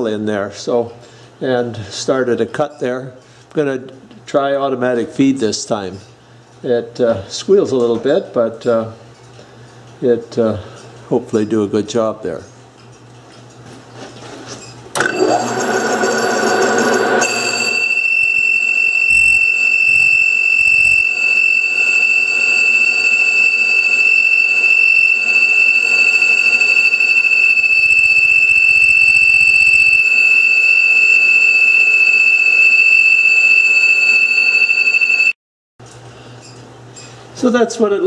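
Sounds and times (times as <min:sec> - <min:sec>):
metal lathe cutting: 0:15.0 - 0:35.3
lathe tool squealing: 0:15.0 - 0:35.4.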